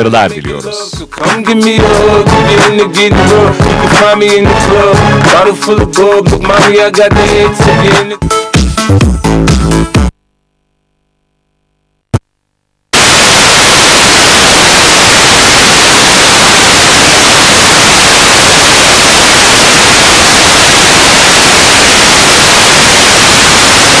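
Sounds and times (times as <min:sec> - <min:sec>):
tv static hiss: 0:10.1 - 0:24.0.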